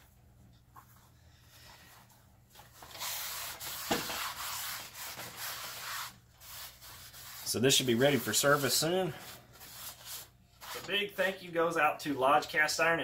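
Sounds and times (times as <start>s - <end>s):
paper towels scrubbing a wok: 2.8s - 10.9s.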